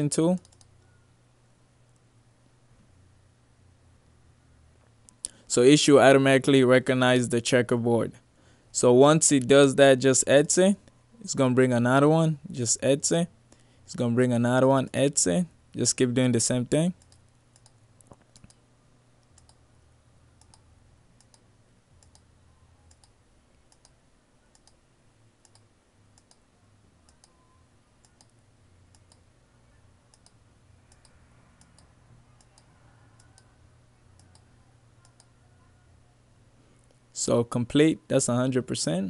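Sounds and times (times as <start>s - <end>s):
faint low hum: 0.0s - 39.0s
quiet computer clicks: 0.3s - 1.0s, 16.8s - 18.6s, 19.2s - 19.6s, 20.4s - 22.3s, 22.9s - 24.8s, 25.4s - 27.4s, 28.0s - 29.3s, 30.1s - 35.4s.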